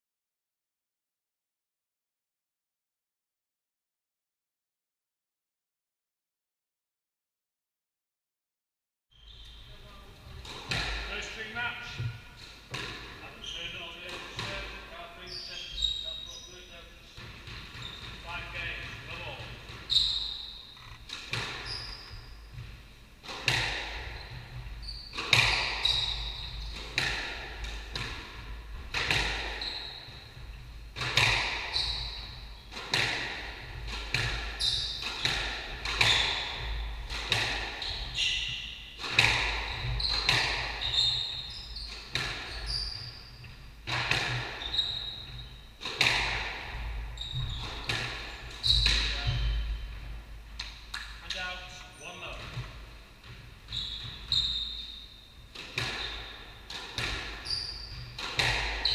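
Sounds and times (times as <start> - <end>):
shoes squeaking on wooden floor: 9.1 - 22.9, 24.0 - 28.0, 28.9 - 33.2, 33.8 - 37.1, 37.7 - 45.8, 46.9 - 50.2, 51.2 - 55.2, 55.8 - 56.6, 57.4 - 58.9
squash ball hits echoing: 10.4 - 13.2, 21.1 - 42.8, 43.8 - 51.2, 55.5 - 58.9.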